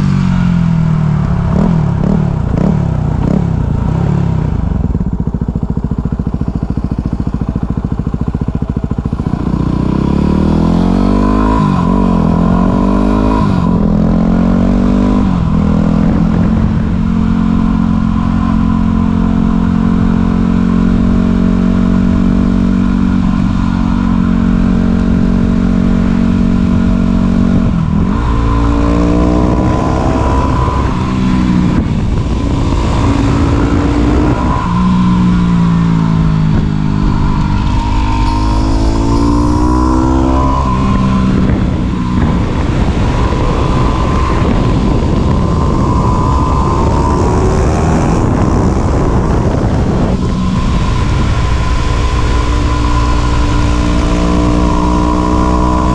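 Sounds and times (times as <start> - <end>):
motorcycle engine revving: 0.0 - 55.9
loud rushing noise: 27.6 - 55.9.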